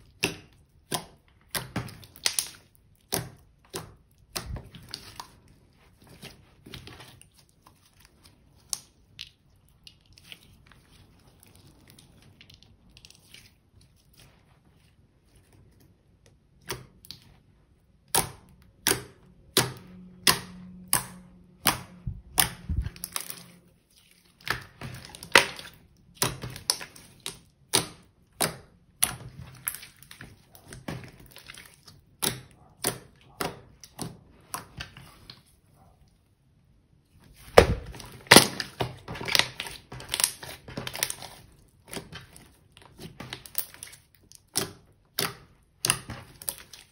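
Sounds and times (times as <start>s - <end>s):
slime popping and clicking: 0.1s - 5.2s.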